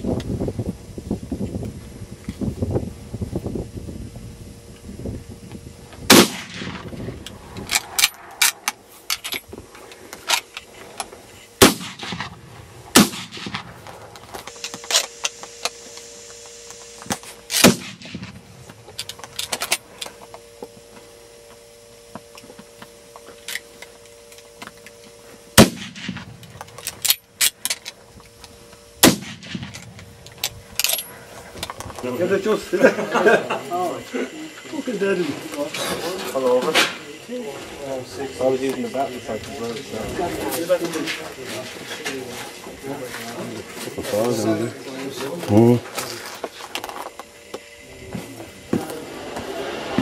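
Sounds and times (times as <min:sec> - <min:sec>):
faint gunshots: 0:06.1 - 0:06.9, 0:11.6 - 0:13.8, 0:17.6 - 0:18.4, 0:25.6 - 0:26.4, 0:29.0 - 0:29.7
rifle shots with echo: 0:06.1 - 0:06.9, 0:11.6 - 0:13.8, 0:17.5 - 0:18.4, 0:25.6 - 0:26.4, 0:29.0 - 0:29.9.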